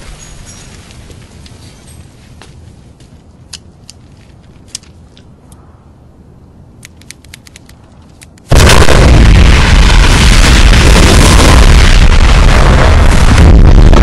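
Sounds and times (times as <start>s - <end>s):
huge building explosion: 8.5s - 14.0s.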